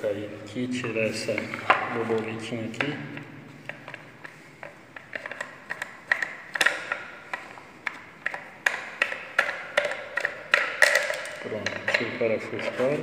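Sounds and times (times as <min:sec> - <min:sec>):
plastic clicks and rattles: 0:04.6 - 0:12.1.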